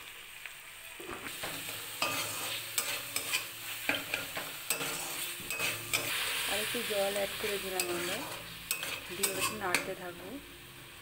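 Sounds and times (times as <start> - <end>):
spices sizzling in pan: 0.0 - 11.0
spatula scraping metal pan: 1.3 - 6.5, 7.7 - 9.9.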